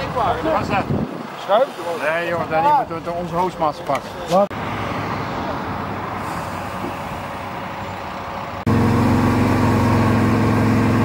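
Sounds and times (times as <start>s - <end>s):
fire engine pump running: 6.2s - 11.0s.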